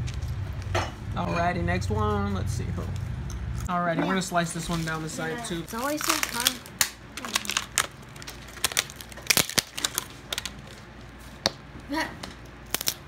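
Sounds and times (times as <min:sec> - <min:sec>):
plastic packaging crinkling: 0:04.6 - 0:11.2.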